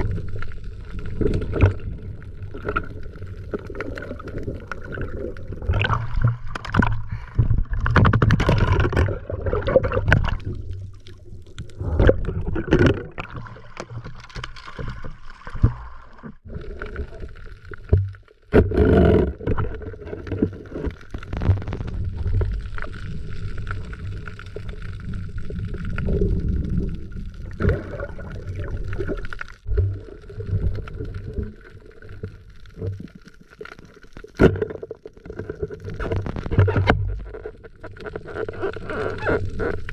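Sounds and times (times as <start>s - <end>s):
underwater swishing and gurgling: 0.0s - 39.9s.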